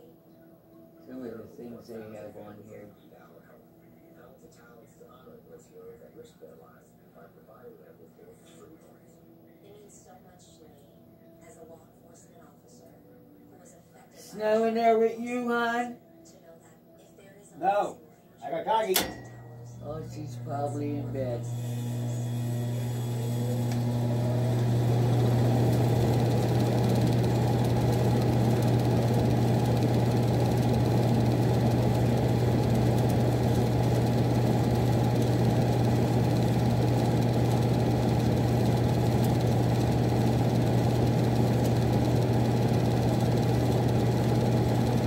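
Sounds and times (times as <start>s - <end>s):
furnace blower humming: 18.7s - 45.0s.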